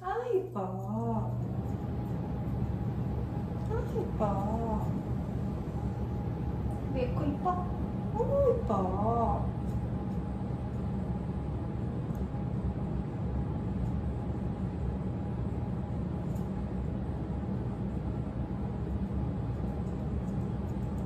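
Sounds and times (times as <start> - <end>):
appliance hum and rumble: 0.0 - 21.0
grooming scissors snipping: 16.3 - 16.6.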